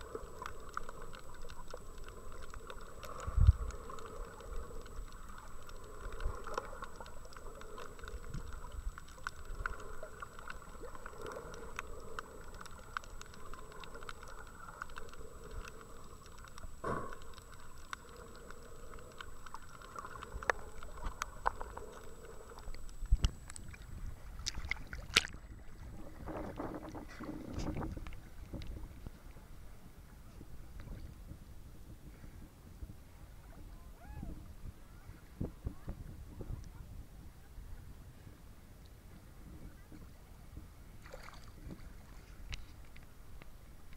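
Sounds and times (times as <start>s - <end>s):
thin high whine: 0.0s - 25.3s
small clicks and crackles: 0.0s - 31.4s, 41.0s - 43.9s
muffled underwater hiss: 0.0s - 43.9s.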